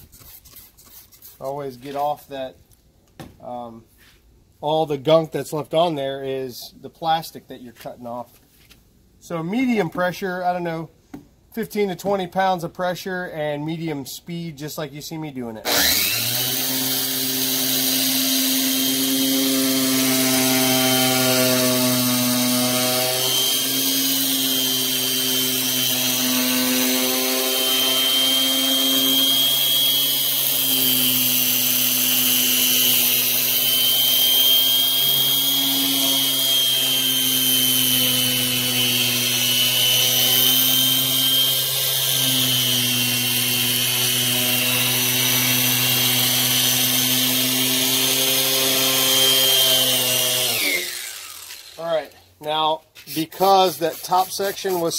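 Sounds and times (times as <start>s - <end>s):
electric polisher whining: 15.7s - 51.8s.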